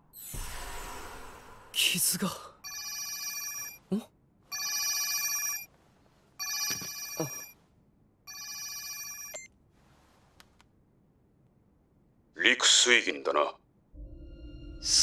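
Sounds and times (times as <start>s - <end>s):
phone ringtone trill: 2.6s - 3.8s, 8.3s - 9.4s.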